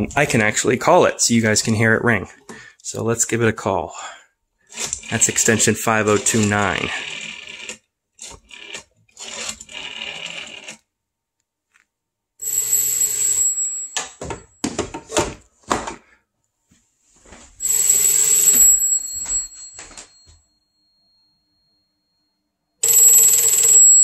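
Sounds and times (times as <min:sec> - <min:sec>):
rotary phone dial spinning: 0:04.7 - 0:10.9
telephone bell ringing: 0:12.4 - 0:14.6, 0:17.6 - 0:24.0.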